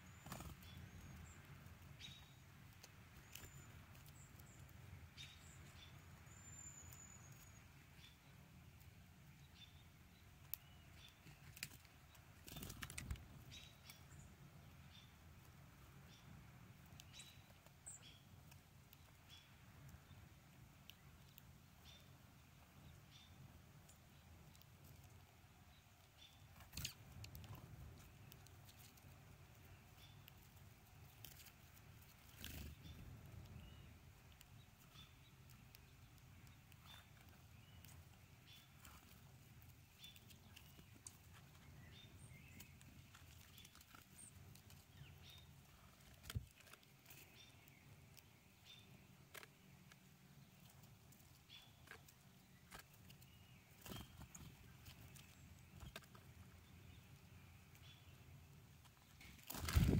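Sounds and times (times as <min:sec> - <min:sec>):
faint bird chips: 0:22.8 - 0:59.9.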